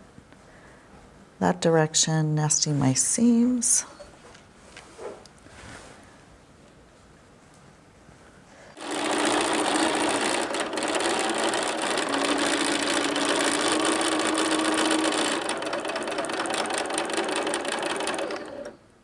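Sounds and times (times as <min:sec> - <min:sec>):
sewing machine stitching: 0:08.8 - 0:18.8.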